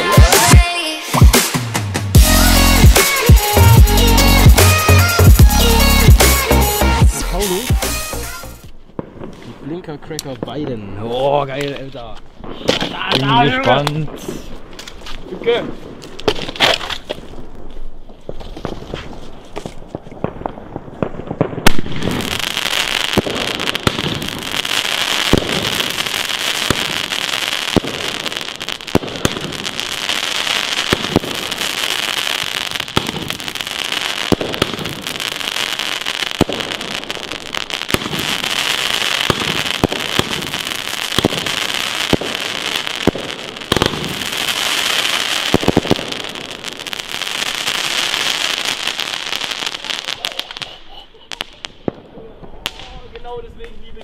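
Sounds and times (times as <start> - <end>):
firework launch cracks: 3.0 - 3.6, 12.4 - 53.8
dense firework crackle: 7.4 - 54.0
firework bang: 18.3 - 50.7.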